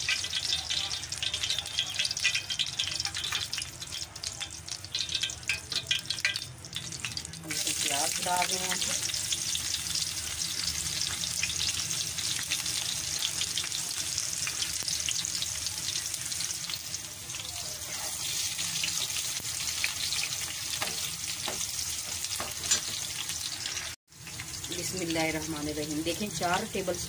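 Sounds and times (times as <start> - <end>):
onions sizzling in a pan: 0.0 - 27.0.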